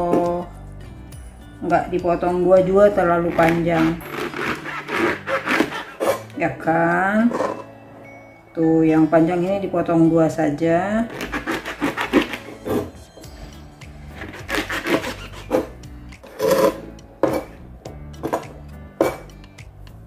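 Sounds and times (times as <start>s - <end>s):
background music: 0.0s - 20.0s
knife chopping on cutting board: 3.3s - 6.3s, 11.2s - 12.9s, 14.2s - 17.6s, 18.2s - 19.4s.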